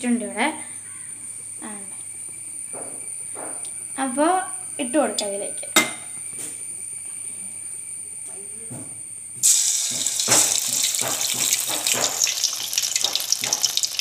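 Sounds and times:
deep-fry sizzling and crackling: 0:09.4 - 0:14.0.

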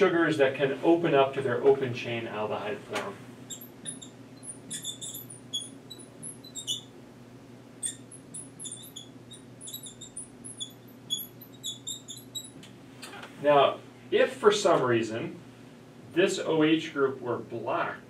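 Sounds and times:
marker squeaking on glass: 0:03.4 - 0:07.0, 0:07.8 - 0:12.6.

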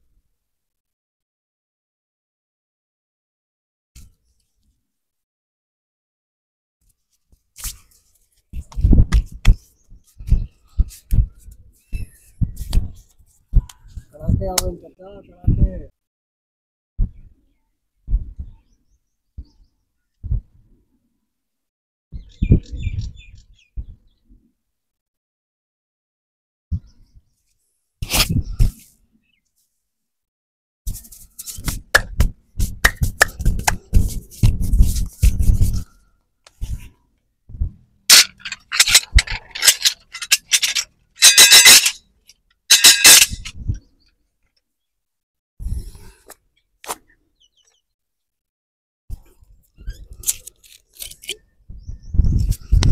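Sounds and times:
glass bottles clinking: 0:38.1 - 0:42.0, 0:42.7 - 0:43.5.

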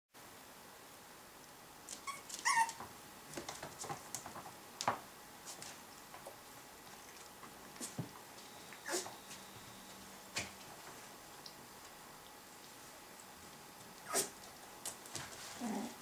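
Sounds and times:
puppy whining: 0:01.9 - 0:02.8, 0:08.7 - 0:09.2, 0:14.0 - 0:14.4, 0:15.6 - 0:16.0.

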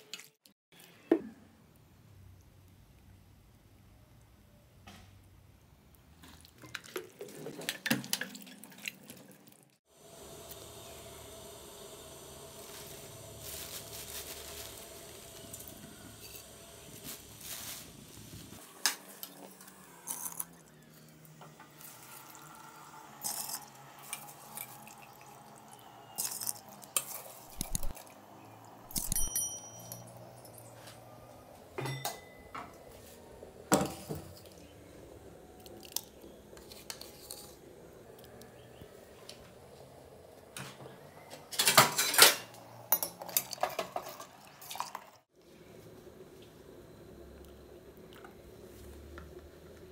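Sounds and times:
metal spoon clinking on steel pot: 0:28.9 - 0:30.2.

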